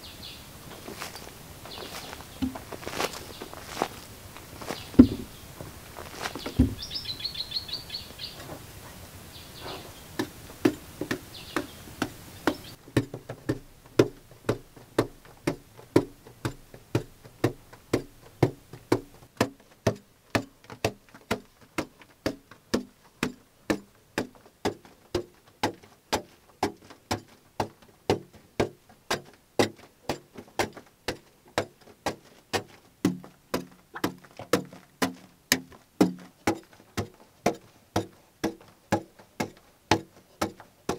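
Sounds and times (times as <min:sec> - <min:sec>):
birds chirping: 0:00.0 - 0:12.8
pick striking packed earth: 0:00.6 - 0:07.1, 0:17.0 - 0:40.9.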